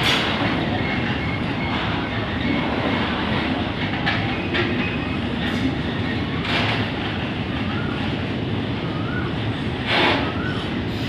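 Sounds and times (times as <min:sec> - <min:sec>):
wheels clacking over rail joints: 0:00.0 - 0:07.7
train wheels rumbling on rails: 0:00.0 - 0:11.0
faint wheel squeal: 0:08.9 - 0:11.0.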